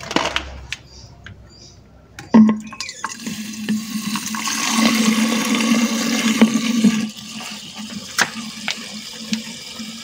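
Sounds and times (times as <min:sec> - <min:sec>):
water pouring into plastic bottle: 0:02.7 - 0:10.0.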